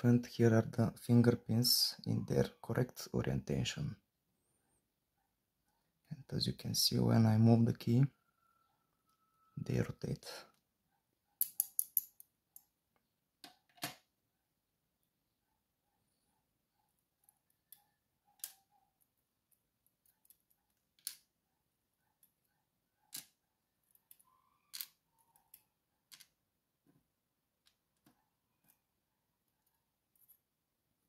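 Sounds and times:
tweezers clicking on lock pins: 11.4s - 12.7s.

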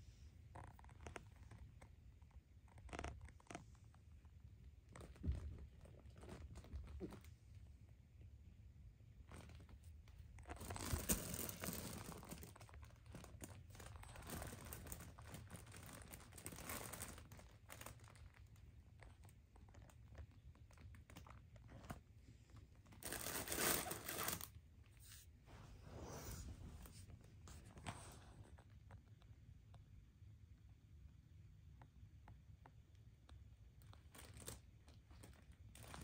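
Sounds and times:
fabric tunnel rustling and crinkling: 4.8s - 7.3s, 9.2s - 28.2s.

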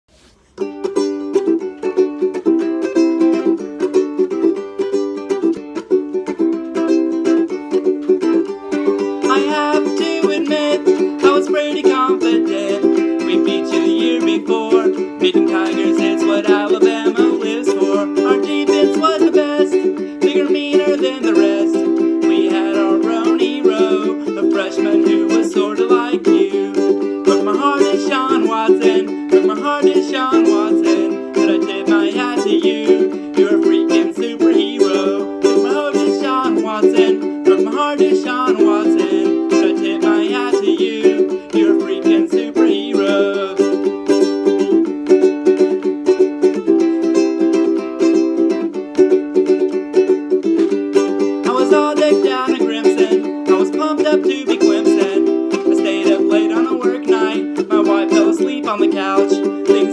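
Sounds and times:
ukulele strumming chords: 0.2s - 59.9s
man singing: 8.4s - 44.8s, 50.9s - 59.9s.

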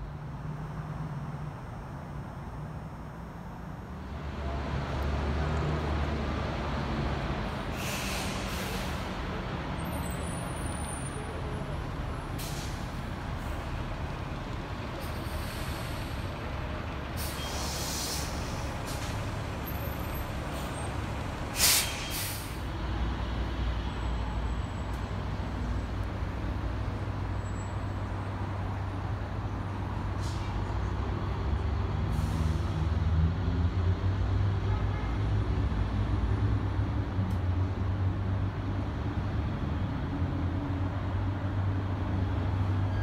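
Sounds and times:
bus engine rumble: 0.0s - 43.0s
air brakes hissing: 7.6s - 9.2s, 12.2s - 13.0s, 15.0s - 16.3s, 17.2s - 22.7s, 30.1s - 30.7s, 32.0s - 32.8s.

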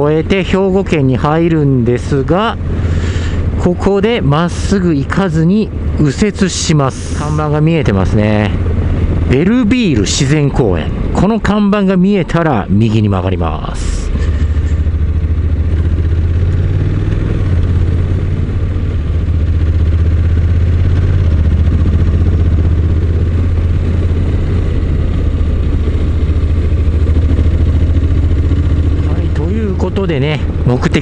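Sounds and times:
motorcycle engine running: 0.0s - 31.0s.

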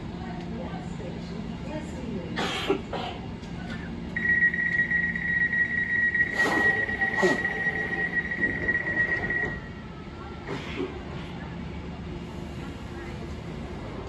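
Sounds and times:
low train hum: 0.0s - 14.0s
high warning beep: 4.2s - 9.8s.

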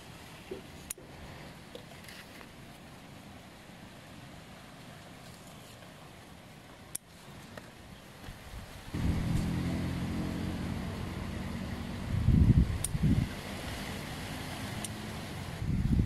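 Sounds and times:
engine running: 9.0s - 15.6s.

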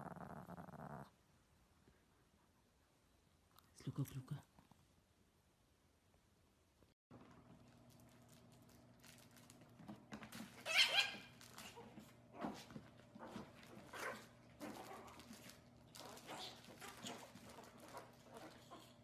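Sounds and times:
puppy yipping and barking: 10.7s - 11.3s.

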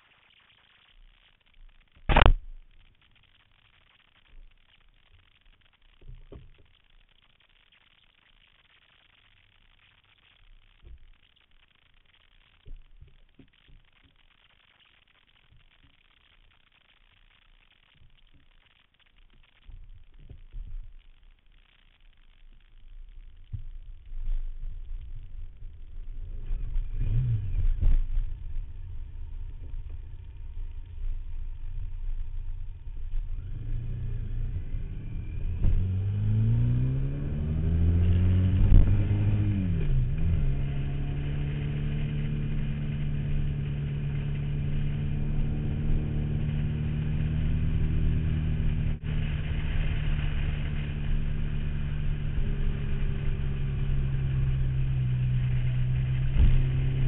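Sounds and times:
motorcycle engine: 23.5s - 57.0s.

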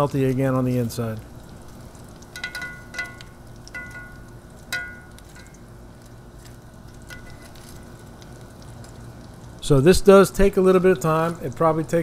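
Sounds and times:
food sizzling in oil: 0.0s - 12.0s
metal tongs clinking on pan: 2.2s - 5.6s, 7.0s - 7.8s.

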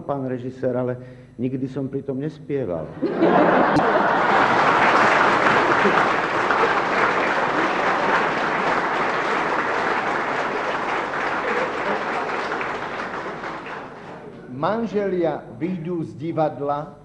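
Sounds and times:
large audience applauding: 3.6s - 14.4s.

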